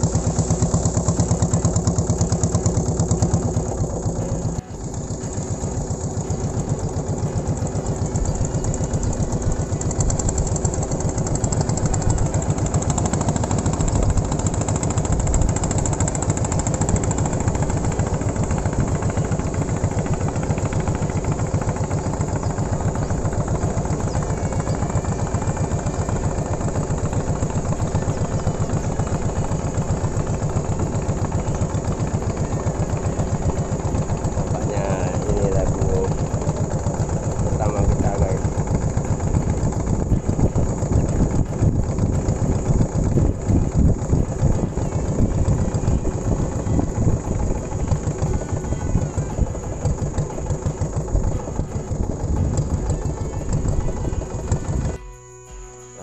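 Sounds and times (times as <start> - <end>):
motorboat engine chugging: 0.0 - 56.0.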